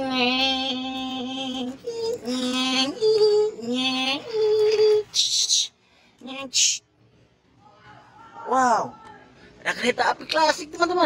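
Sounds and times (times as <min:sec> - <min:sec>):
person singing long notes: 0:00.0 - 0:05.3.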